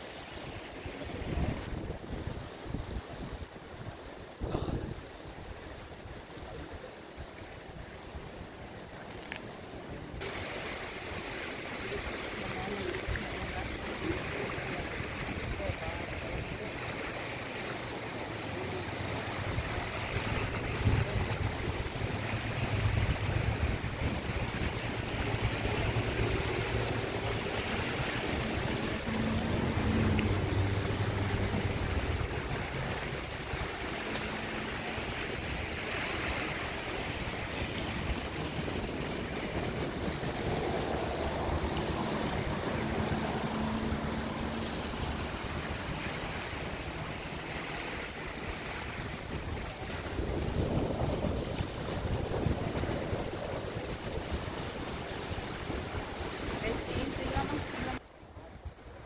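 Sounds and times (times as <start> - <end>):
river water rushing: 0.0 - 59.0
wind rumbling on microphone: 0.0 - 59.0.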